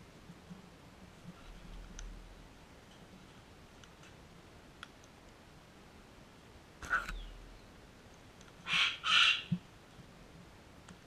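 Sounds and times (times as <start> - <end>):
cockatoos squawking: 8.7 - 9.5.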